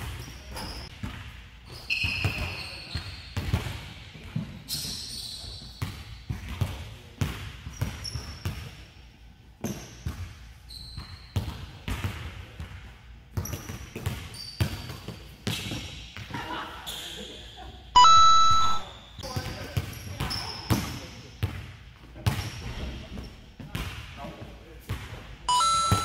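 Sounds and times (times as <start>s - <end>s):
sneakers squeaking on floor: 0.0s - 0.9s, 1.6s - 3.6s, 4.6s - 6.1s, 7.7s - 8.7s, 10.7s - 11.6s, 13.4s - 15.9s, 25.5s - 26.0s.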